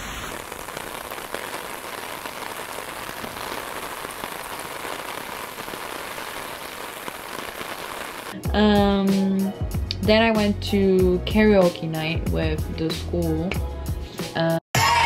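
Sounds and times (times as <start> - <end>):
rain falling on street: 0.0 - 8.4.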